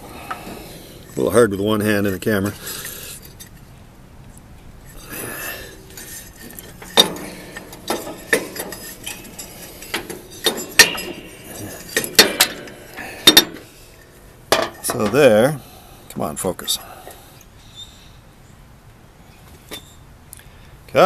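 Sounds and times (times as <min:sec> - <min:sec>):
metallic clinks and knocks: 0:05.8 - 0:15.2.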